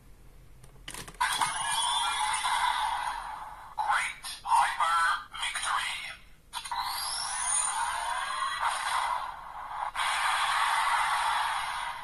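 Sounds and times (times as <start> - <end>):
toy electronic sound effects: 1.2 - 2.4, 6.6 - 8.6.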